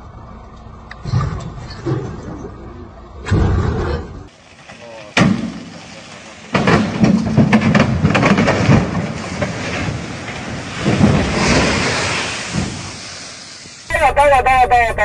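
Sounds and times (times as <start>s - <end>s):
truck crashing rumble: 1.0s - 13.8s
sharp crack: 4.5s - 13.9s.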